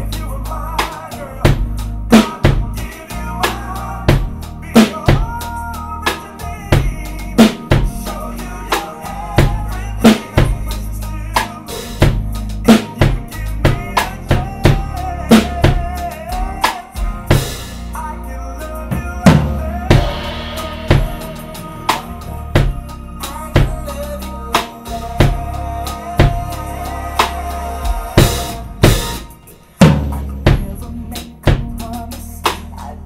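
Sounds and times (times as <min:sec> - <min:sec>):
drum kit kick and snare beat: 0:00.0 - 0:18.1, 0:18.7 - 0:33.0
recorded pop ballad: 0:00.0 - 0:33.0
cymbal crashes: 0:19.9 - 0:22.2.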